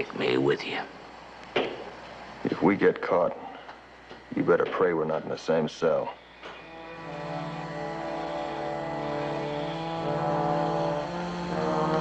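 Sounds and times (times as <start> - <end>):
sustained orchestral chord: 6.6 - 12.0.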